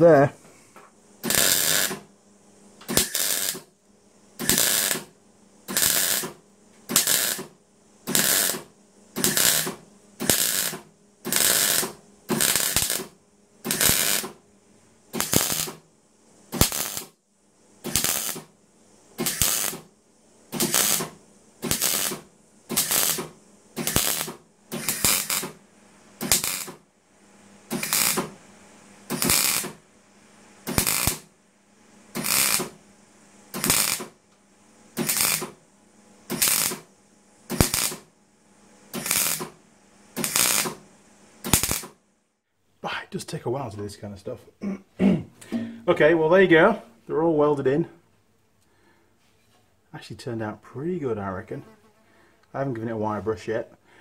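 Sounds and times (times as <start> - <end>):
welder arc crackling: 1.2 - 2.1, 2.8 - 3.8, 4.4 - 14.4, 15.1 - 15.9, 16.5 - 17.2, 17.8 - 19.9, 20.5 - 25.6, 26.2 - 26.8, 27.7 - 28.4, 29.0 - 29.8, 30.6 - 31.3, 32.1 - 32.8, 33.5 - 34.2, 34.9 - 35.6, 36.3 - 36.9, 37.5 - 38.1, 38.9 - 40.8, 41.4 - 42.0.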